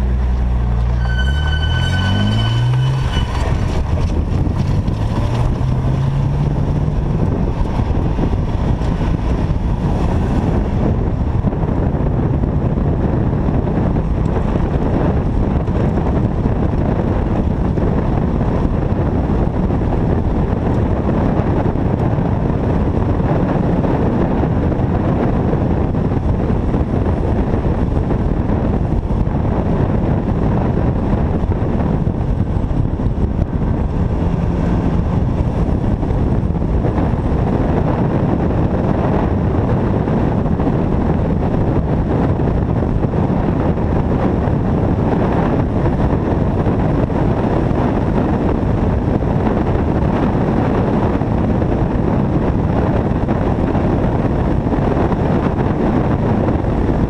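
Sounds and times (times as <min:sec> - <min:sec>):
car engine accelerating: 0:00.0 - 0:51.6
wind buffeting microphone: 0:00.0 - 0:57.0.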